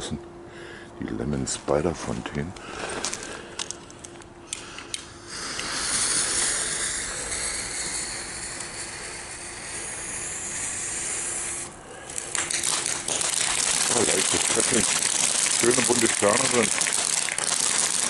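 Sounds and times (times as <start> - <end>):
fountain firework hissing: 5.2 - 18.0.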